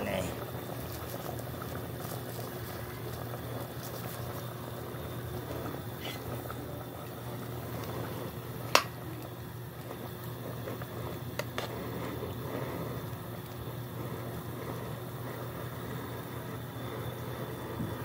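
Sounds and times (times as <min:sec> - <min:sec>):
pot bubbling at a boil: 0:00.0 - 0:18.0.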